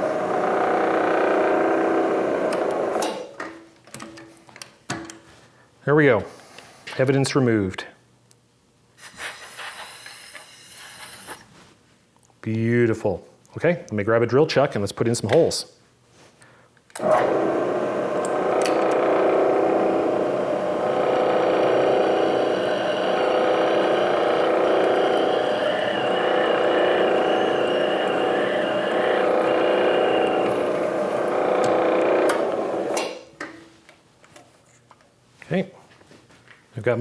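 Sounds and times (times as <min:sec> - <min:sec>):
milling machine drilling metal: 0:00.0 - 0:03.0, 0:17.0 - 0:33.1.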